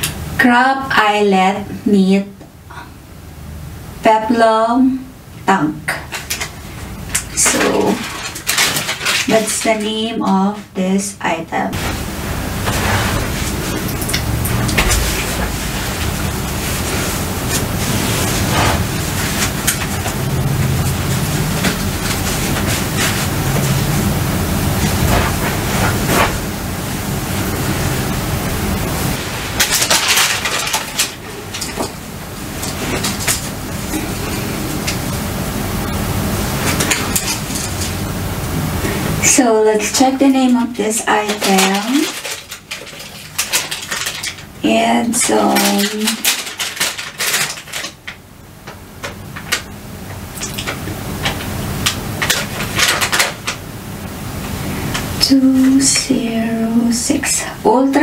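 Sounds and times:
steady background hiss: 0.0s - 58.0s
low hum: 11.5s - 39.8s
clothing rustling: 11.7s - 20.2s.

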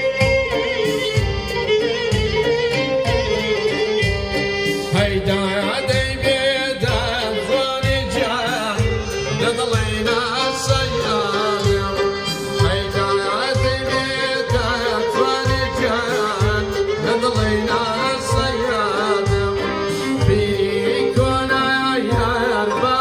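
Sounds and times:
oud: 0.0s - 23.0s
santur: 0.0s - 23.0s
violin: 0.0s - 23.0s
man singing: 4.8s - 23.0s.

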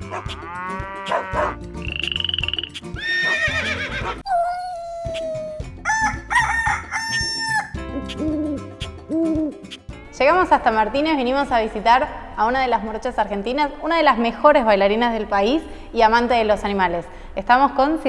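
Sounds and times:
intro music with steady beat: 0.0s - 3.0s, 5.2s - 10.0s
cartoon animal calls: 1.0s - 6.4s.

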